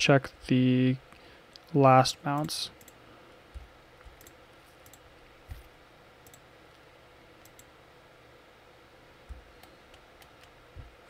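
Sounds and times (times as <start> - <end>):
low room hiss: 0.0 - 11.0
computer mouse clicks: 2.4 - 5.6, 6.2 - 6.8, 7.4 - 7.7.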